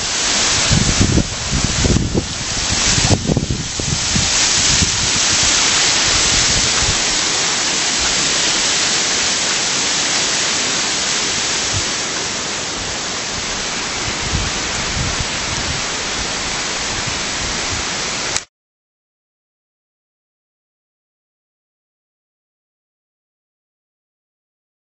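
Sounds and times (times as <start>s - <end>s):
waterfall rushing: 0.0s - 18.5s.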